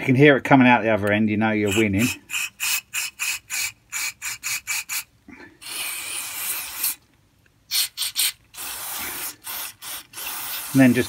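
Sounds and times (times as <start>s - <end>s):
aerosol spray hissing: 1.7s - 7.0s, 7.7s - 11.0s.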